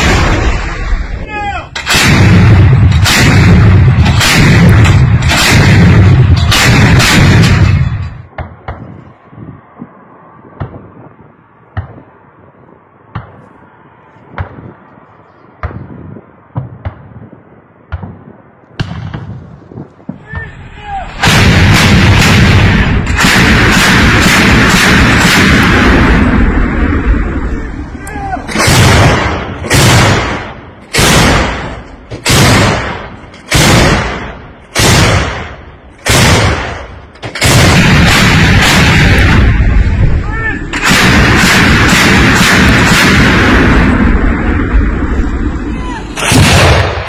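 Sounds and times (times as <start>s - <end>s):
anti-aircraft gun firing bursts: 1.8s - 7.9s, 21.2s - 26.3s, 28.5s - 39.7s, 40.7s - 44.4s, 46.2s - 47.0s.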